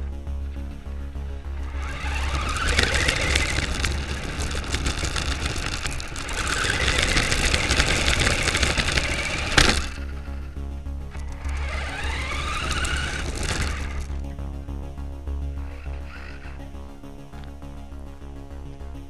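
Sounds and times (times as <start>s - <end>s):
toy car electric motor whining: 1.0s - 14.2s, 15.6s - 16.7s
tyres crunching on gravel: 1.5s - 10.4s, 11.2s - 14.3s.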